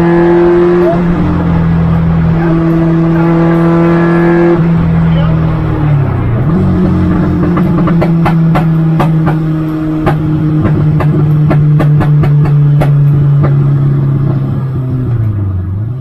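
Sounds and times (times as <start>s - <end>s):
race car engine running hard: 0.0s - 16.0s
sharp clicks and knocks: 6.4s - 15.4s.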